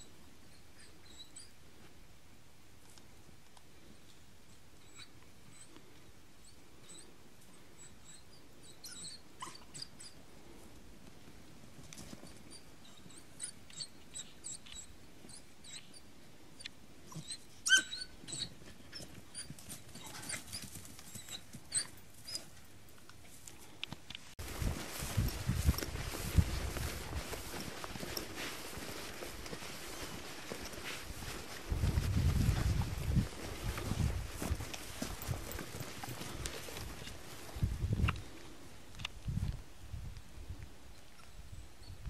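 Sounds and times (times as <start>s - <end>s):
dog yapping and yelping: 7.8s - 10.2s, 17.1s - 22.5s
rustling and trampling: 18.5s - 38.6s.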